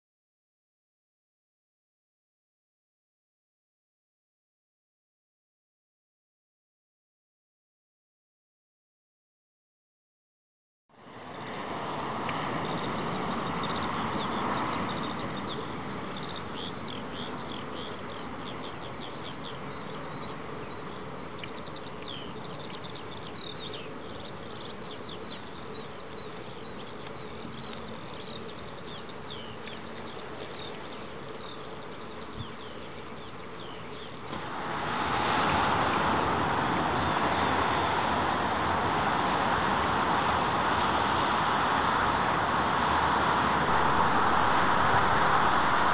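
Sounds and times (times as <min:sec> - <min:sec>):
distant jet engines rushing: 0:11.0 - 0:45.9.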